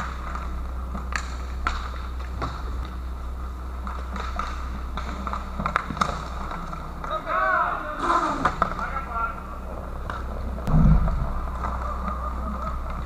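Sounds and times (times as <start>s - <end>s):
hockey sticks clacking on puck: 0.0s - 3.0s, 3.8s - 7.4s, 8.1s - 9.4s
steady low hum: 0.0s - 13.0s.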